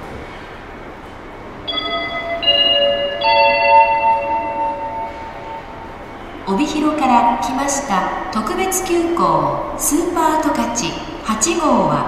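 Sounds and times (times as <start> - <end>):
bell-like loudspeaker chime: 1.7 - 5.7.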